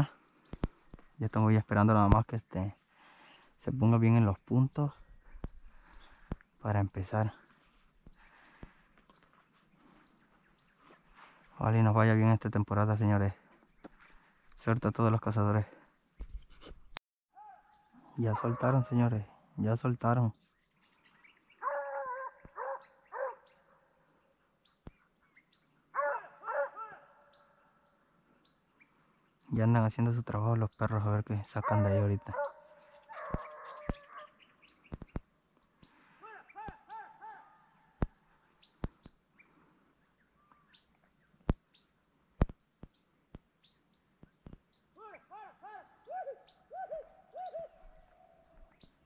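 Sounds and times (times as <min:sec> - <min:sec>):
high insect drone: 0:00.0 - 0:17.0, 0:17.6 - 0:49.0
bird chirps: 0:00.0 - 0:18.6, 0:20.2 - 0:29.9, 0:30.6 - 0:49.0
sharp clicks: 0:00.5 - 0:01.1
hunting dogs baying: 0:17.4 - 0:19.0, 0:21.6 - 0:23.7, 0:25.9 - 0:27.4, 0:31.6 - 0:34.4, 0:36.2 - 0:37.8, 0:45.2 - 0:48.4.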